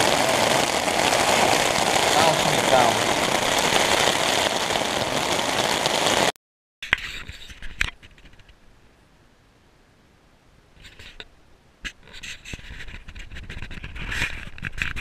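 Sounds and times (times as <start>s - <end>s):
heavy rain: 0.0s - 6.4s.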